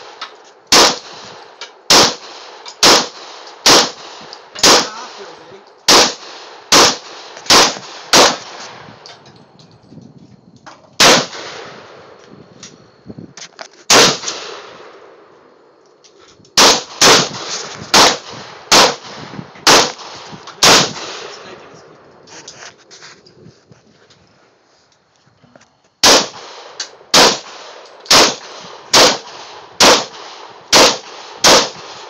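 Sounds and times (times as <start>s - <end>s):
handgun shots echoing: 1.9s - 5.3s, 26.0s - 32.0s
light metallic clinks: 9.0s - 10.9s.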